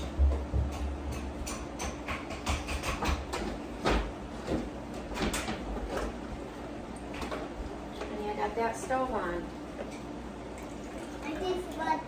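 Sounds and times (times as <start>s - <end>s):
irregular knocks and clicks: 0.0s - 6.1s.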